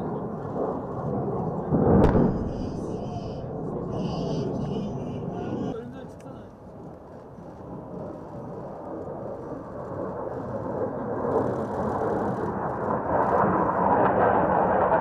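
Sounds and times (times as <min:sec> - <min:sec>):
jet engine rushing: 0:00.0 - 0:05.8.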